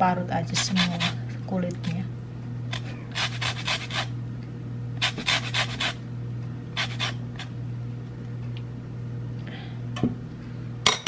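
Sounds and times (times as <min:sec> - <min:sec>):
steady low hum: 0:00.0 - 0:11.0
grater rasping peel: 0:00.5 - 0:01.2, 0:02.7 - 0:04.1, 0:05.0 - 0:06.0, 0:06.8 - 0:07.5.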